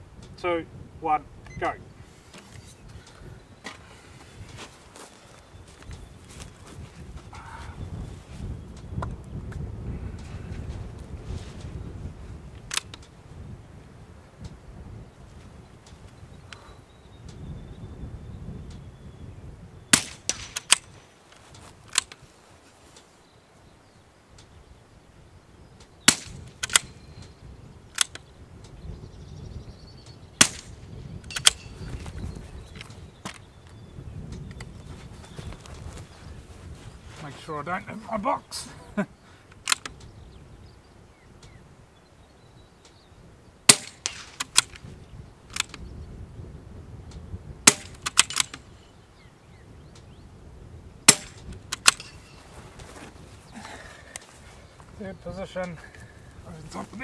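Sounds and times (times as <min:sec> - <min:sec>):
rifle bolt clicks: 0:12.6 - 0:13.1, 0:20.0 - 0:22.2, 0:25.8 - 0:28.3, 0:30.4 - 0:31.7, 0:39.5 - 0:40.1, 0:43.7 - 0:44.9, 0:45.5 - 0:45.9, 0:47.7 - 0:48.7, 0:51.1 - 0:52.2
rifle shots: 0:19.9 - 0:21.0, 0:26.1 - 0:27.0, 0:30.4 - 0:31.7, 0:43.7 - 0:44.8, 0:47.6 - 0:48.6, 0:51.1 - 0:52.2
bullets striking steel targets: 0:30.4 - 0:31.9, 0:43.7 - 0:44.7, 0:47.7 - 0:48.6, 0:51.1 - 0:52.3.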